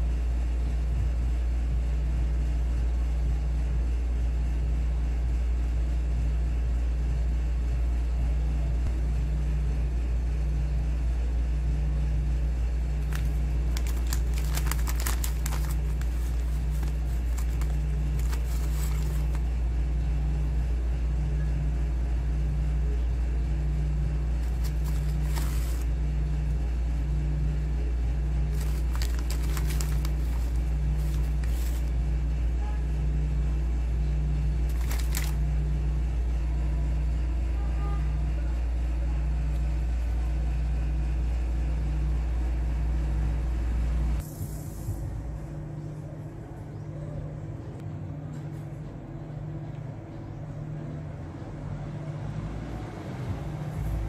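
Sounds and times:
pulsing mechanical hum: 0:00.0 - 0:54.0
plastic wrapper crinkling: 0:13.0 - 0:19.5, 0:24.4 - 0:25.9, 0:28.5 - 0:31.9, 0:34.7 - 0:35.4.

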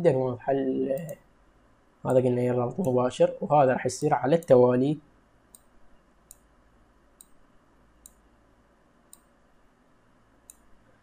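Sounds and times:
computer mouse clicks: 0:00.9 - 0:01.2, 0:05.5 - 0:06.5, 0:07.2 - 0:07.4, 0:08.0 - 0:08.2, 0:09.1 - 0:09.3, 0:10.4 - 0:10.8.

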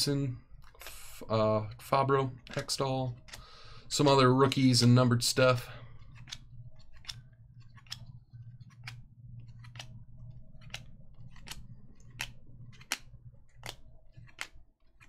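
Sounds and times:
low steady hum: 0:00.0 - 0:15.0
trading cards snapping: 0:05.9 - 0:15.0.

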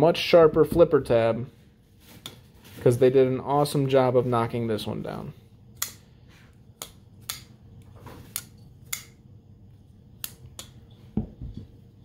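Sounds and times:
folding knife clicking open and shut: 0:08.3 - 0:09.2.

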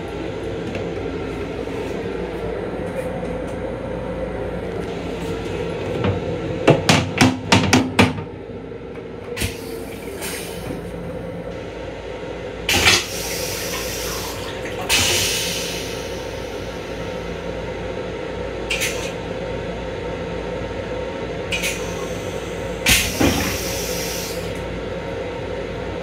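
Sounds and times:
railcar interior hum and rumble: 0:00.0 - 0:26.0
sharp knocks and clatters: 0:06.0 - 0:08.3.

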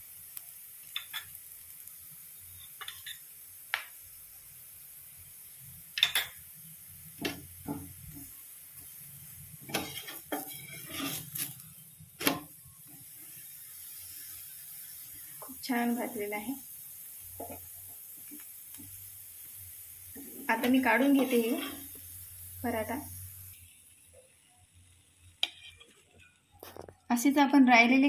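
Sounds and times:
flatbread sizzling in oil: 0:00.0 - 0:28.0
metal spoon scraping a griddle: 0:02.6 - 0:03.2, 0:09.6 - 0:12.5, 0:20.6 - 0:22.0, 0:25.4 - 0:26.4.

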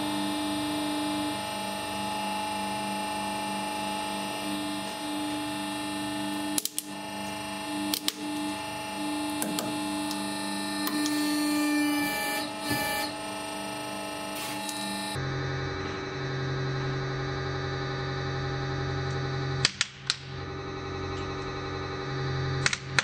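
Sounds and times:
hydraulic press motor humming: 0:01.3 - 0:15.2.

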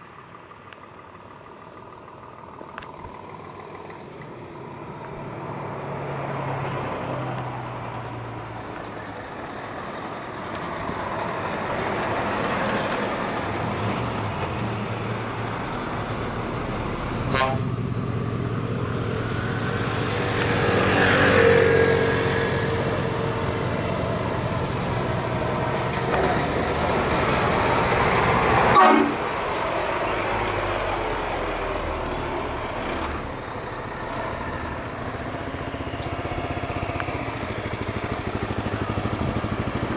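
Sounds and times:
diesel trucks rolling past: 0:00.0 - 0:39.9
truck horn: 0:17.2 - 0:17.8, 0:28.7 - 0:29.3.

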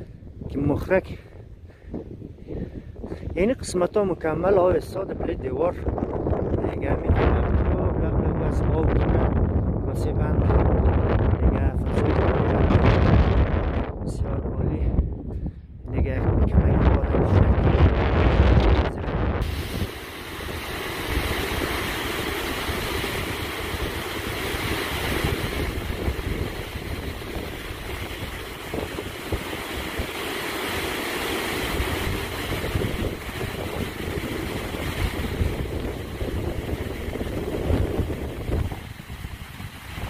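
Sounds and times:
wind buffeting microphone: 0:00.0 - 0:40.0
water jetting into rocky channel: 0:19.4 - 0:40.0.

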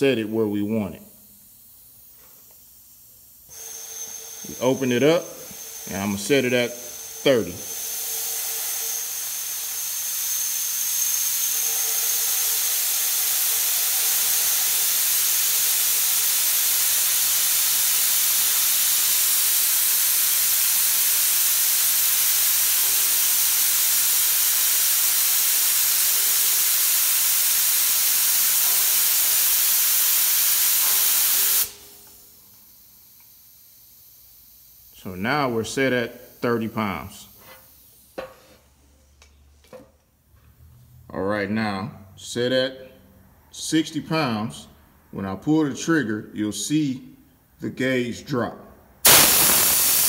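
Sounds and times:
compressed air hissing from spray gun: 0:03.5 - 0:11.4, 0:12.0 - 0:32.1, 0:49.0 - 0:50.0.

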